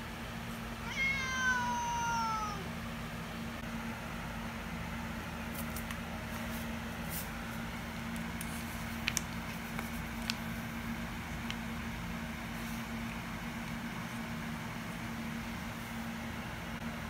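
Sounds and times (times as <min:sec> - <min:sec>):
steady low hum: 0:00.0 - 0:17.0
cat meowing: 0:00.8 - 0:02.7.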